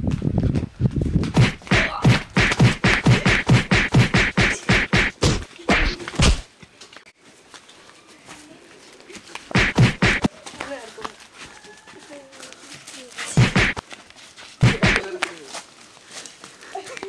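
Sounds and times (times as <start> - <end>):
rapid whacks and thumps of blows: 1.3 - 6.5, 9.5 - 10.3, 13.4 - 13.8, 14.6 - 15.1.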